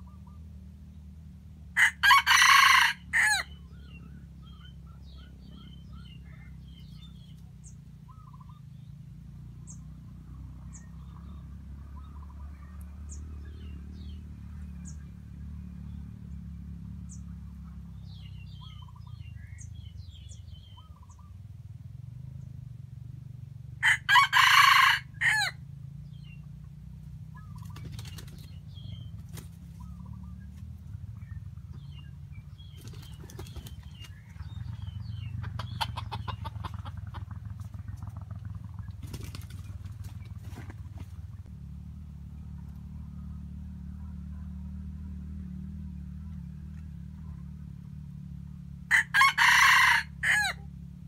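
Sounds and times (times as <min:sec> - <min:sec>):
rooster crowing: 0:01.8 - 0:03.6, 0:23.8 - 0:25.6, 0:48.9 - 0:50.7
small birds chirping: 0:03.4 - 0:21.7, 0:26.0 - 0:41.5
steady low rumble: 0:25.0 - 0:49.2.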